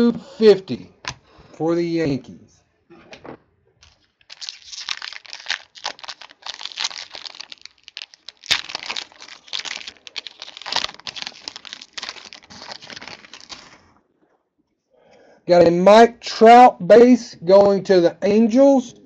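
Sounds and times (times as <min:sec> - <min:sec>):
plastic wrapper crinkling and tearing: 0:03.8 - 0:14.0.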